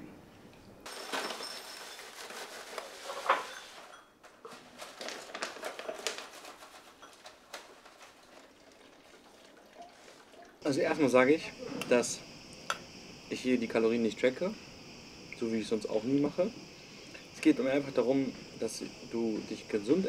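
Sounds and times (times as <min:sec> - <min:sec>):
plastic bag crinkling: 0:00.9 - 0:10.4.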